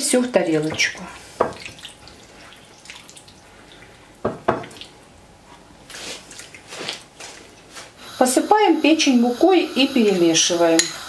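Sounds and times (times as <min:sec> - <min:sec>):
soft wet rustle: 0:00.9 - 0:08.0.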